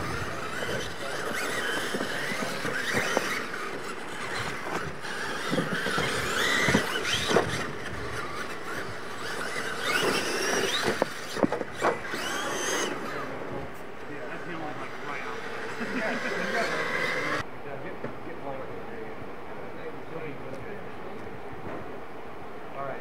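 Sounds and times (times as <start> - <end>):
tyres scrabbling on dirt: 0.0 - 17.4
electric motors whining: 0.0 - 17.5.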